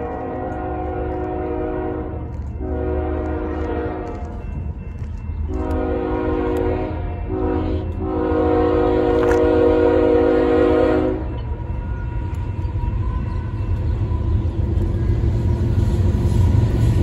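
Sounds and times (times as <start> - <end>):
locomotive air horn blasts: 0.0 - 4.3, 5.5 - 11.4
low rumble of train: 0.0 - 17.0.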